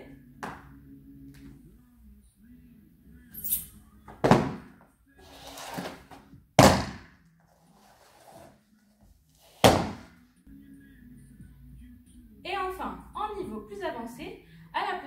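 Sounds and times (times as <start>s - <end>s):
soft scraping rustle: 7.4s - 9.6s.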